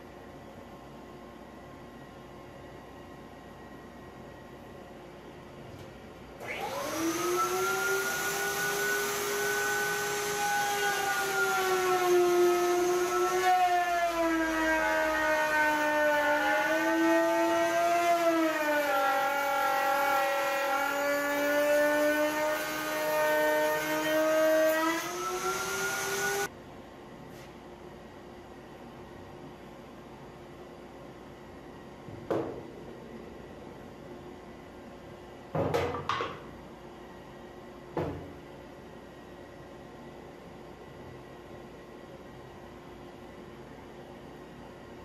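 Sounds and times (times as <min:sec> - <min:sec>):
router cutting wood: 0:06.4 - 0:26.5.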